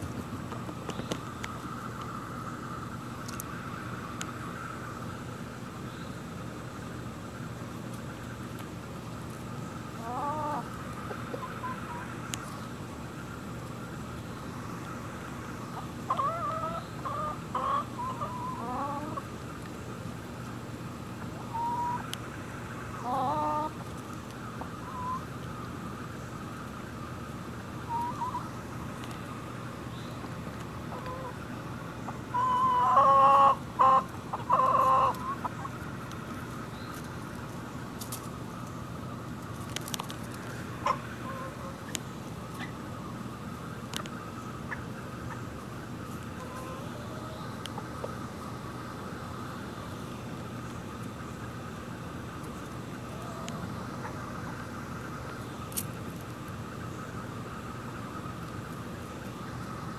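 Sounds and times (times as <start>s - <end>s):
chickens calling: 9.8s - 19.8s, 20.9s - 50.0s, 51.0s - 59.9s
chicken calling: 10.0s - 12.2s, 15.7s - 19.3s, 21.3s - 22.2s, 22.9s - 23.8s, 24.6s - 25.3s, 27.8s - 28.6s, 30.9s - 31.4s, 32.3s - 35.9s, 40.8s - 41.9s, 46.3s - 48.1s
chickens clucking: 10.0s - 12.6s, 14.7s - 19.7s, 21.1s - 25.3s, 27.8s - 38.6s, 39.5s - 42.9s, 43.5s - 48.9s, 52.4s - 56.3s.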